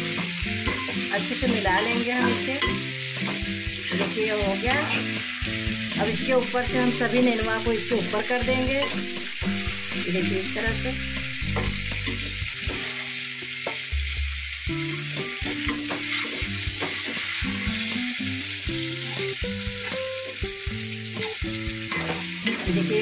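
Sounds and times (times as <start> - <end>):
food sizzling in oil: 0.0 - 23.0
spatula scraping pan: 15.6 - 17.9.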